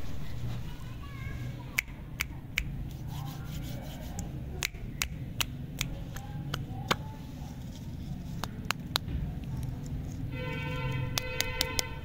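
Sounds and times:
finger snaps: 0:01.8 - 0:02.8, 0:04.1 - 0:07.1.

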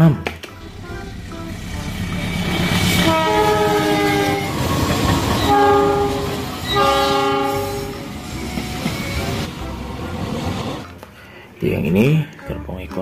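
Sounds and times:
running train rumble: 0:00.6 - 0:11.0
locomotive air horn blasts: 0:00.7 - 0:04.7, 0:05.4 - 0:08.1.

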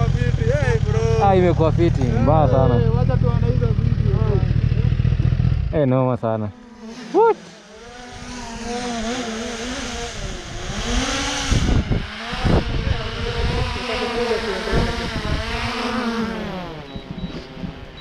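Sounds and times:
drone propellers buzzing: 0:00.0 - 0:18.0
wind gusts on microphone: 0:09.9 - 0:18.0.

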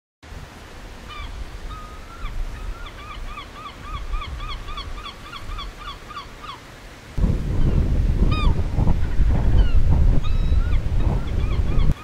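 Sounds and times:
gull calling: 0:01.1 - 0:06.7, 0:07.6 - 0:08.6, 0:09.5 - 0:12.0
low rumble: 0:07.2 - 0:11.9.

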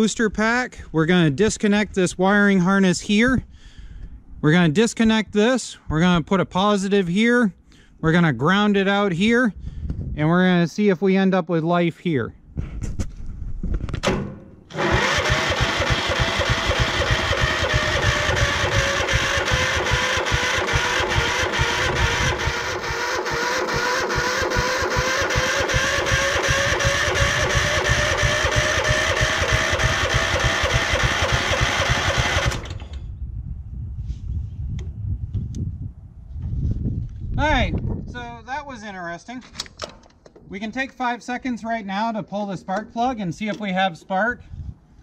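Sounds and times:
electric starter whine: 0:14.0 - 0:33.2
engine compression chugging: 0:14.7 - 0:32.9.

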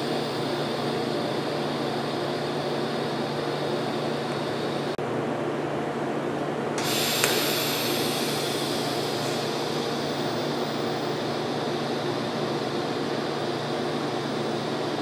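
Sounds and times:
machine hum: 0:00.0 - 0:15.0
welding arc hissing: 0:06.8 - 0:15.0.

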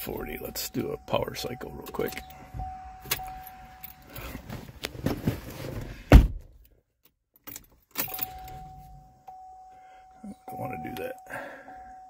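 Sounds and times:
car warning tone: 0:00.0 - 0:04.5, 0:08.0 - 0:12.0
loud thump: 0:05.0 - 0:06.5.

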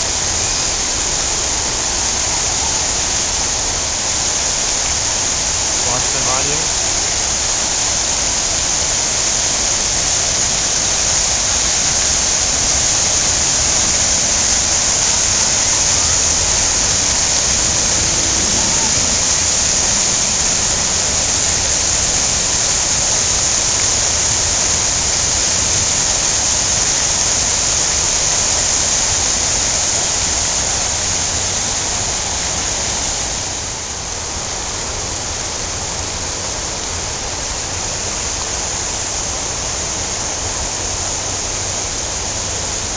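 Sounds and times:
fountain water splashing: 0:00.0 - 0:42.9.

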